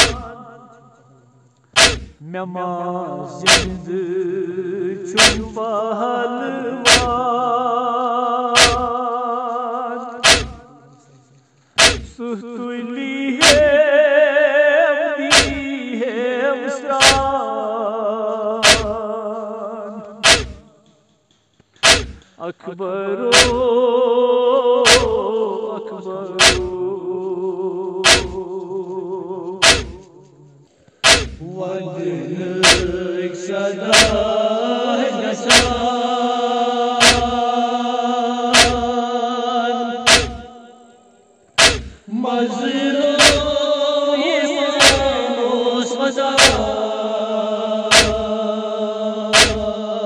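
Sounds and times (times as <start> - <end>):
chest-beating slaps: 0.0 - 0.4, 1.8 - 2.2, 3.5 - 3.8, 5.2 - 5.5, 6.9 - 7.2, 8.6 - 9.0, 10.2 - 10.7, 11.8 - 12.2, 13.4 - 13.7, 15.3 - 15.7, 17.0 - 17.4, 18.6 - 19.0, 20.2 - 20.8, 21.8 - 22.3, 23.3 - 23.7, 24.9 - 25.2, 26.4 - 26.8, 28.0 - 28.4, 29.6 - 30.1, 31.0 - 31.5, 32.6 - 33.0, 33.9 - 34.3, 35.5 - 35.8, 37.0 - 37.4, 38.6 - 38.9, 40.1 - 40.5, 41.6 - 42.0, 43.2 - 43.6, 44.8 - 45.2, 46.4 - 46.7, 47.9 - 48.3, 49.4 - 49.7
men chanting a lament: 0.0 - 0.9, 1.8 - 21.0, 21.8 - 40.9, 41.6 - 50.0.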